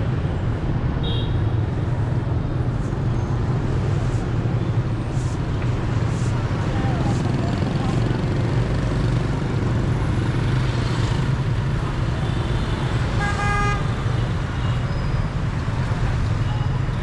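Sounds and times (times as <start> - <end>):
street traffic engine rumble: 0.0 - 17.0
vehicle horn honking: 1.0 - 1.5, 13.2 - 13.9.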